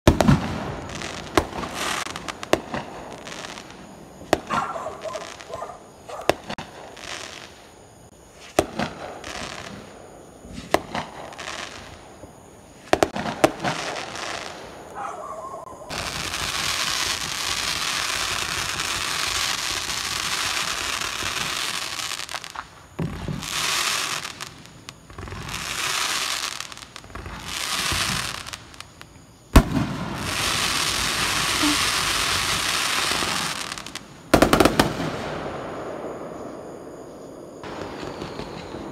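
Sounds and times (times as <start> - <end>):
firework hissing: 0.1 - 4.6, 15.9 - 35.6
firework bangs: 0.1 - 7.7, 8.3 - 38.9.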